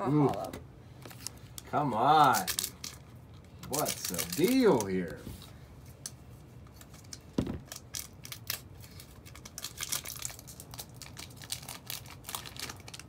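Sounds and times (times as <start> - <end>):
cards rustling: 0.1 - 6.1
foil wrapper crinkling and tearing: 0.2 - 5.2, 6.8 - 13.0.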